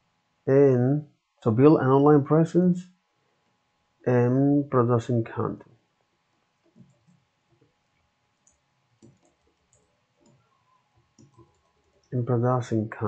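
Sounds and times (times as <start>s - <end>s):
keyboard typing: 8.4s - 10.4s, 11.1s - 12.1s.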